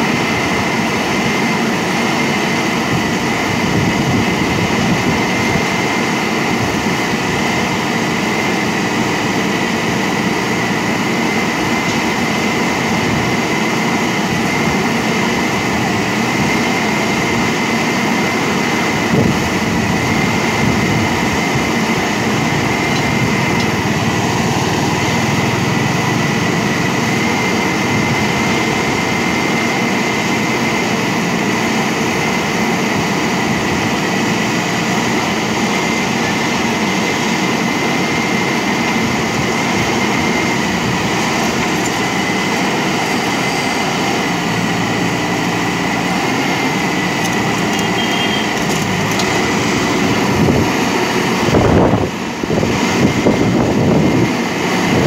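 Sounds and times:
diesel engine running: 0.0 - 55.0
high whine: 0.0 - 55.0.

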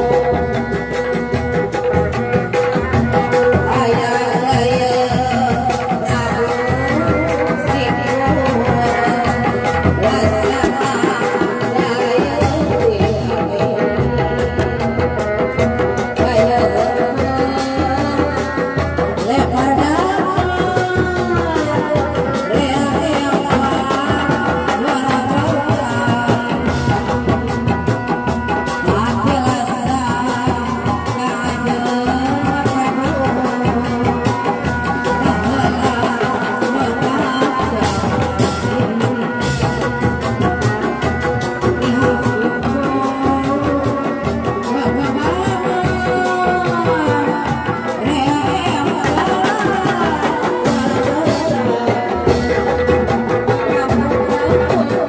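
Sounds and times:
hand drums beating fast rhythm: 0.0 - 55.0
large barrel drum: 0.0 - 55.0.

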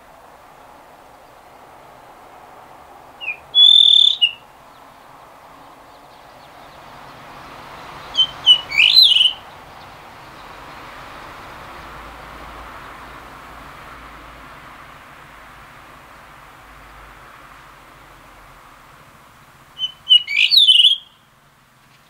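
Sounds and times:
bird whistling song: 3.2 - 4.4, 8.0 - 9.6, 19.8 - 21.2.

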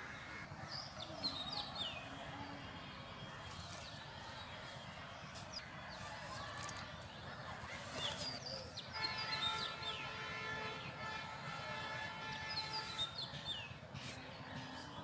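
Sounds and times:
birds chirping: 0.0 - 15.0
distant horn tone: 8.9 - 14.0.

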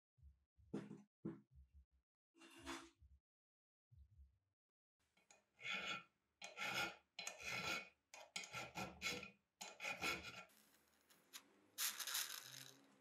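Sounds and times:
hand file rasping on metal: 5.4 - 10.5.

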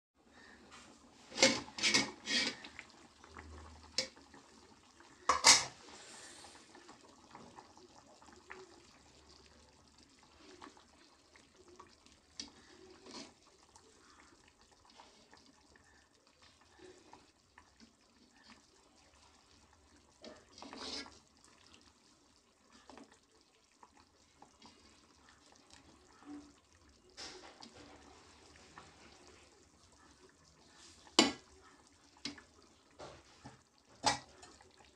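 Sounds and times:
pot lid clanking on pot: 5.3 - 5.7.

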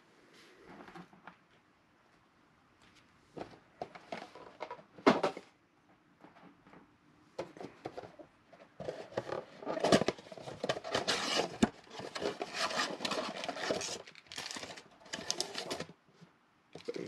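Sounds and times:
cardboard box tearing: 10.8 - 15.8.

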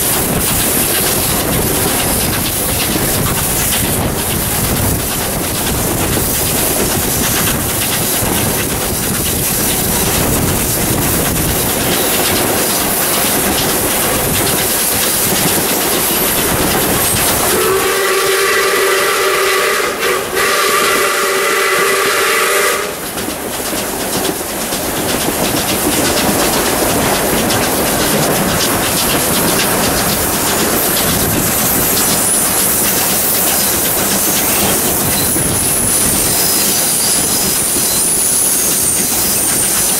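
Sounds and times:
steam locomotive running: 0.0 - 39.9
steam whistle: 17.4 - 23.1.

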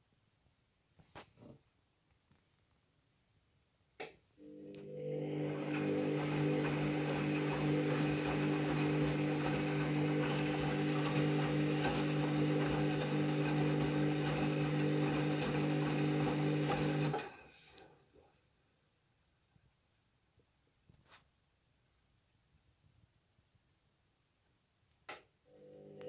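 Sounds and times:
washing machine humming: 4.4 - 18.2.

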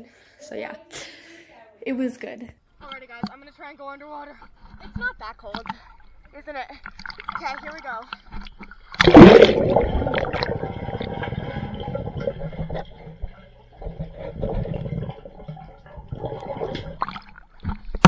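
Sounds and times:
underwater gurgling and bubbling: 8.8 - 18.0
loud splash into pool: 9.0 - 11.6.

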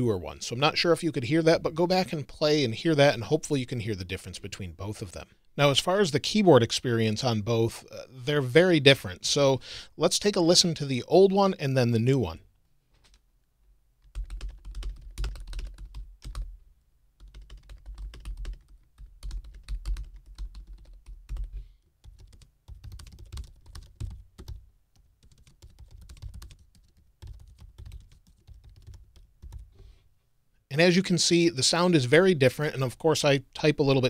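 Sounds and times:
typing on laptop keyboard: 14.0 - 16.5, 17.2 - 29.7.

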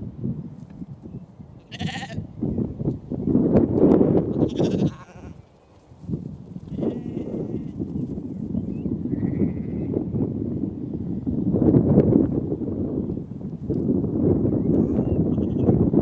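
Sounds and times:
wind buffeting microphone: 0.0 - 16.0
sheep bleating: 1.7 - 2.2, 4.4 - 5.4, 6.6 - 7.8, 9.1 - 10.0.

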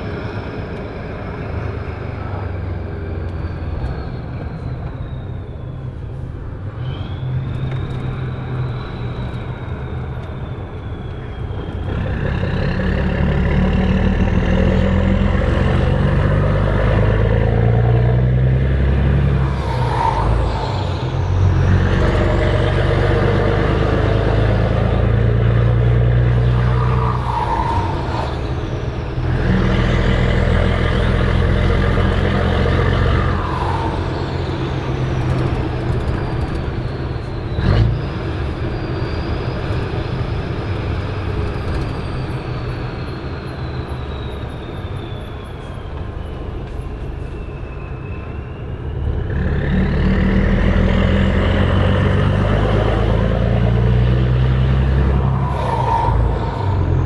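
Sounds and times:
diesel truck engine pulling: 0.0 - 57.0
turbo whistle: 6.7 - 13.0.

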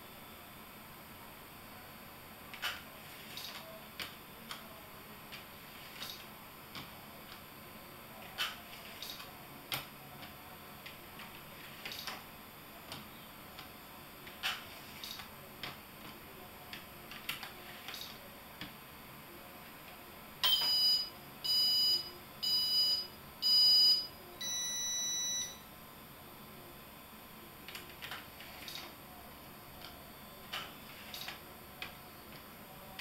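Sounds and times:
short high beeps: 20.4 - 25.6.

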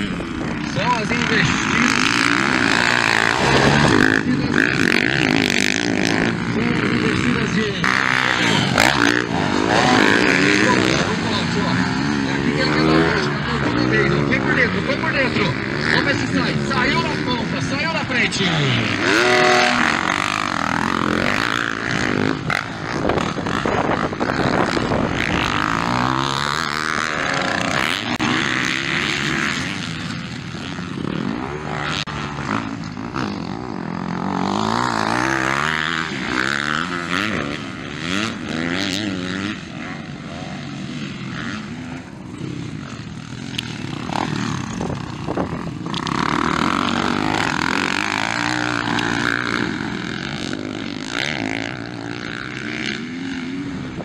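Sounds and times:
motocross bike engines revving: 0.0 - 54.0.

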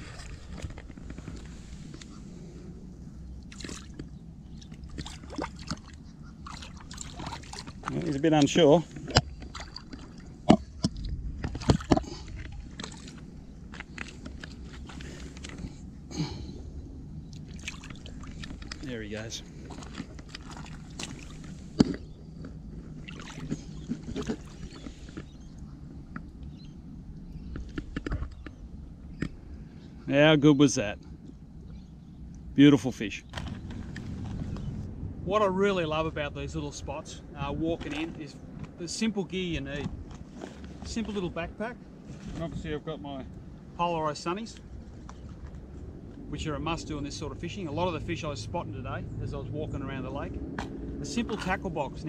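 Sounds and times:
water sloshing and splashing: 0.0 - 15.9, 17.2 - 26.5, 33.2 - 34.7, 37.4 - 41.4
low background rumble: 0.0 - 52.0
fish splashing at surface: 23.0 - 24.8.

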